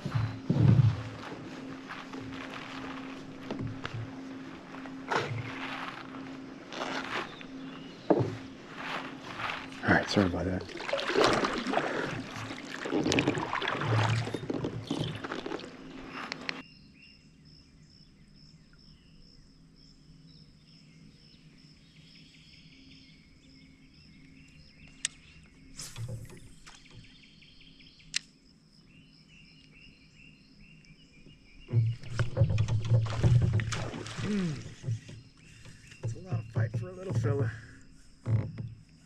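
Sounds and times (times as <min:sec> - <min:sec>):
creek ambience: 0:00.0 - 0:16.6, 0:31.6 - 0:39.0
kayak handling and water noise: 0:00.0 - 0:16.6, 0:25.0 - 0:27.2, 0:31.7 - 0:39.0.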